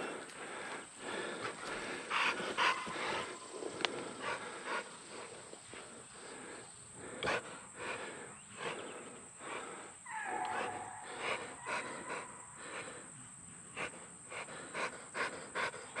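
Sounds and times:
dog panting: 0.0 - 9.8, 10.5 - 16.0.

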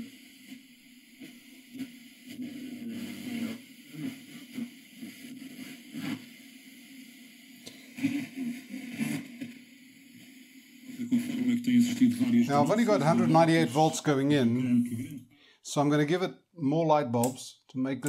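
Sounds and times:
radio hiss and crackle: 0.0 - 18.0
wavering radio tones: 7.8 - 15.2.

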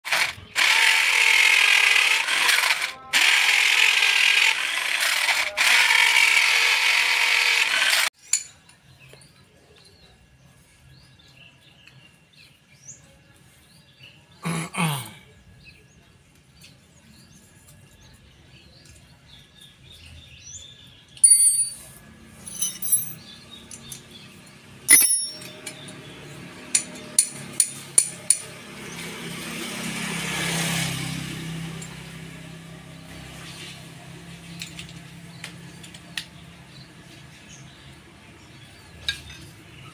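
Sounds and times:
electric drill boring into wood: 0.1 - 8.1
metallic clinks and clicks: 21.2 - 24.1, 24.9 - 26.0.

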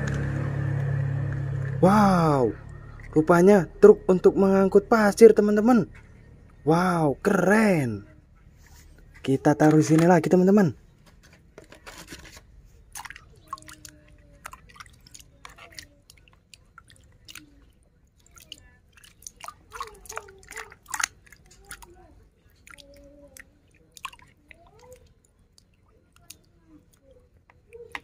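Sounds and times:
splashing and squelching water: 0.0 - 6.4, 12.1 - 28.0.

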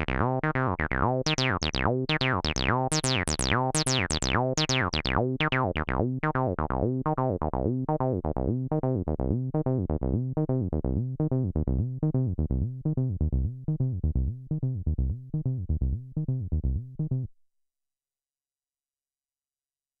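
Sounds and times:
synthesizer acid bassline: 0.0 - 10.7.

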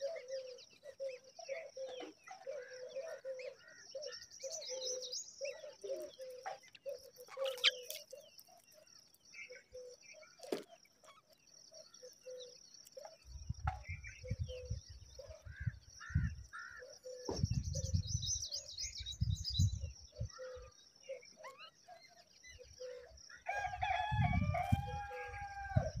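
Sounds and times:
bird calls and chirps: 0.0 - 26.0
rooster crowing: 23.4 - 26.0.

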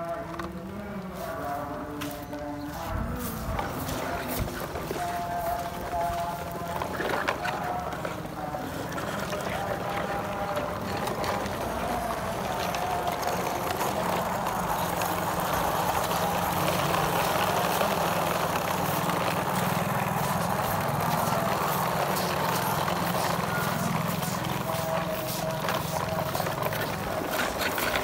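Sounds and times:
engine-like drone: 0.0 - 28.0.

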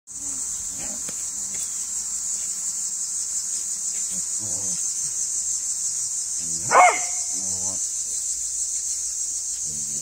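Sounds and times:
high-pitched insect chorus: 0.1 - 10.0
faint dog bark: 6.6 - 7.3.

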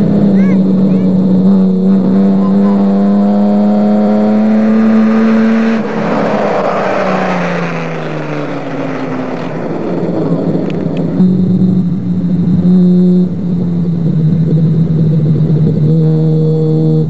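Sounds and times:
race car engine passing by: 0.0 - 11.2.

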